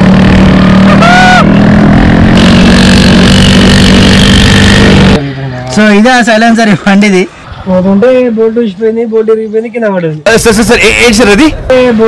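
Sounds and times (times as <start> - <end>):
short pitched cry: 0.8 - 1.5.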